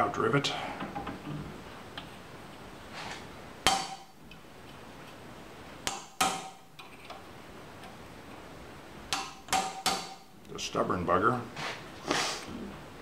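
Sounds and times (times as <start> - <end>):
hammer striking steel punch: 3.6 - 4.1, 5.8 - 6.6, 9.1 - 10.3.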